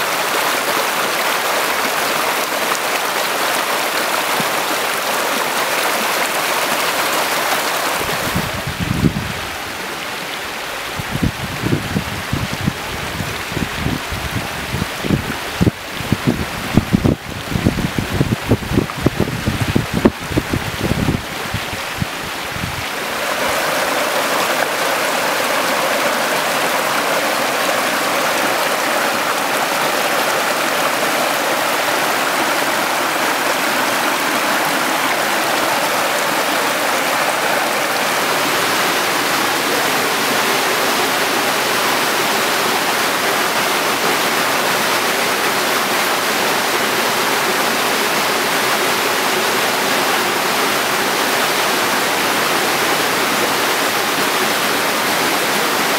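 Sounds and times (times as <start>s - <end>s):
creek water rushing over boulders: 0.0s - 55.9s
wind rumble on microphone: 8.0s - 9.6s, 10.9s - 23.0s.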